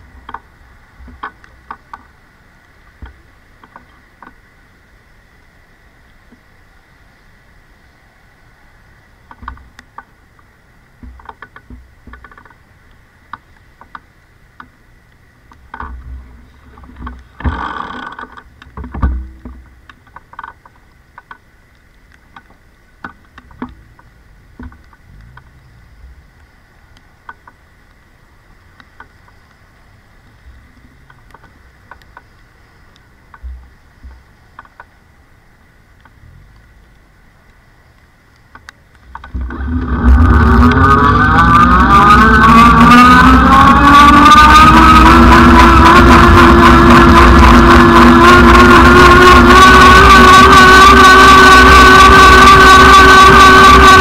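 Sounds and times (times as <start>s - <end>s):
faint high whine: 0.0s - 54.0s
bike knocks and rattles: 15.6s - 21.4s, 22.3s - 25.6s.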